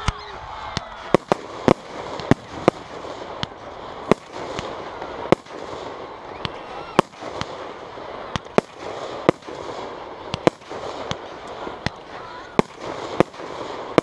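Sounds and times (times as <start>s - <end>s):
fireworks bursting: 0.0s - 14.0s.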